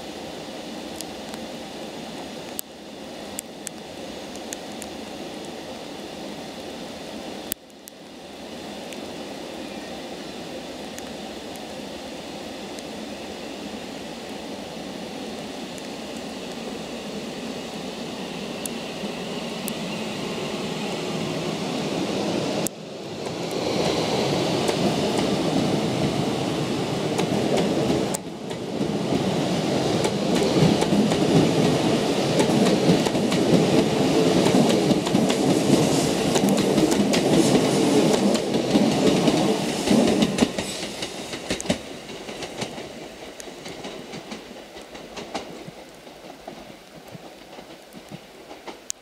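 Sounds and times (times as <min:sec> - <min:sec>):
train rumbling past: 0:00.0 - 0:49.0.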